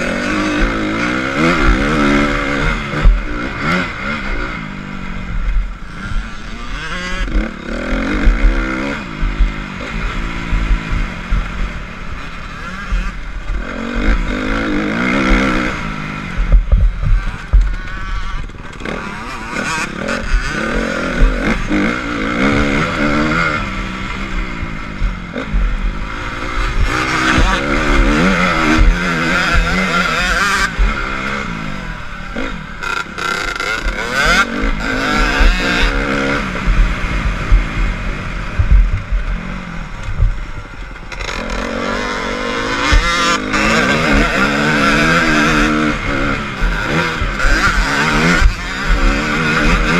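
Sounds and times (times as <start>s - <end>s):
motocross engine revving: 0.0s - 49.9s
wind noise on camera: 0.0s - 49.9s
low thuds: 16.3s - 18.9s, 34.6s - 41.3s, 42.7s - 49.9s.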